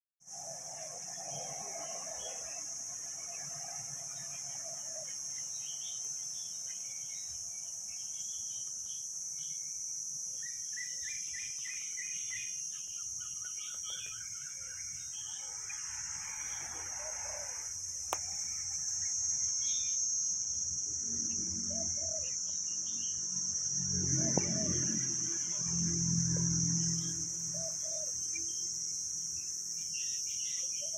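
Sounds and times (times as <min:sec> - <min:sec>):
high-pitched insect drone: 0:00.3 - 0:30.9
young birds chirping: 0:10.4 - 0:17.7, 0:29.8 - 0:30.9.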